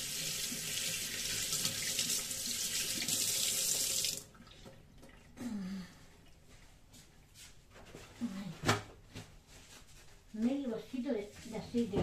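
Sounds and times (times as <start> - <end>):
water running from tap: 0.0 - 5.3.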